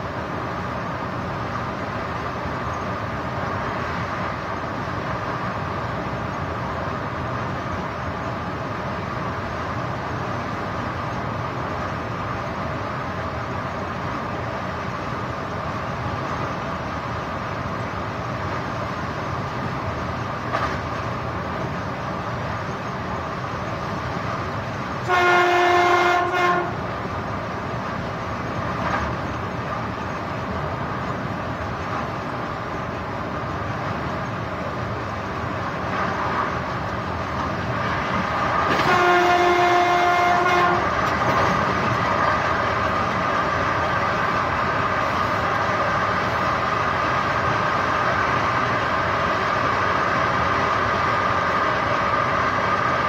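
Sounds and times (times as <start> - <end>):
train running on rails: 0.0 - 53.0
train horn blasts: 25.0 - 26.9, 38.7 - 41.1.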